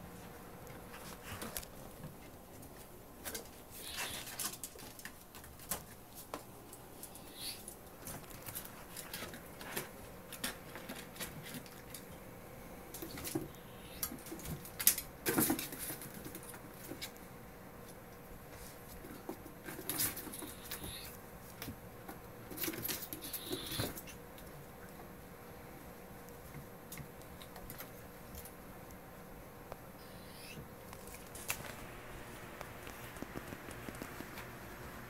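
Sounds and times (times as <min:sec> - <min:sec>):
paws pattering and scrabbling: 0:00.1 - 0:12.2, 0:32.6 - 0:34.6
ferrets dooking: 0:03.3 - 0:04.7, 0:07.0 - 0:07.8, 0:13.0 - 0:14.4, 0:19.8 - 0:21.2, 0:22.6 - 0:24.3, 0:30.0 - 0:31.6.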